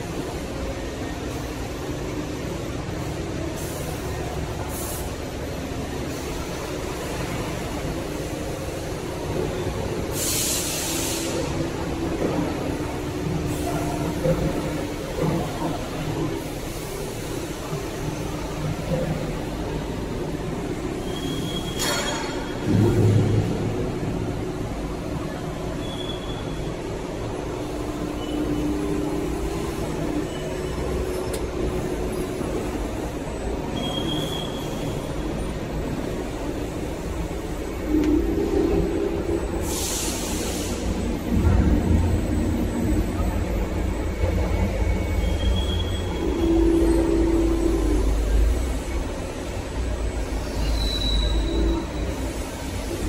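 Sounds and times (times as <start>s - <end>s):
industrial machinery rumble: 0.0s - 33.8s, 34.5s - 53.0s
punch press mechanical hum: 0.0s - 53.0s
compressed air hissing: 10.1s - 11.6s, 39.6s - 41.1s
faint high squeals: 21.0s - 22.4s, 44.9s - 47.8s, 50.4s - 52.1s.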